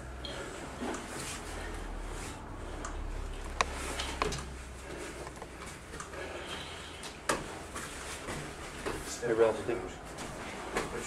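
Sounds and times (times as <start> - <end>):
bodies rubbing on foam mats: 0.5 - 11.0.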